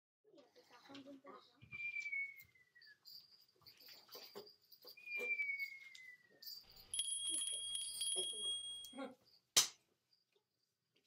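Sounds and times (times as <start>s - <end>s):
person whistling sliding notes: 5.0s - 6.4s.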